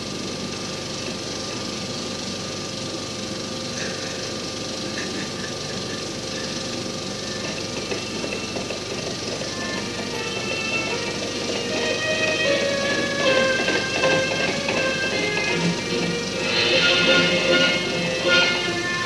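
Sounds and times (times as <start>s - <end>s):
constant hum: 0.0s - 19.0s
old film soundtrack hiss and crackle: 0.0s - 19.0s.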